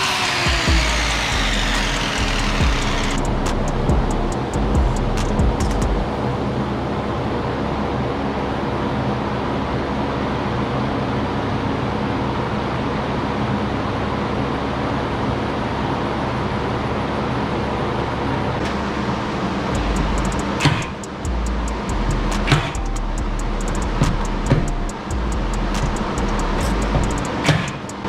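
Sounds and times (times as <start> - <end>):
faint motor hum: 0.0 - 6.1.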